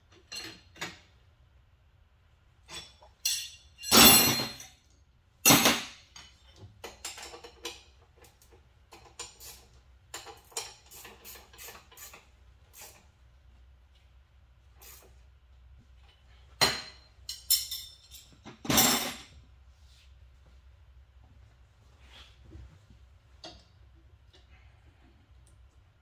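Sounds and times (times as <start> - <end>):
metal tools clinking and knocking: 0.1 - 1.1, 2.6 - 4.9, 5.5 - 9.5, 10.1 - 12.2, 16.6 - 19.4.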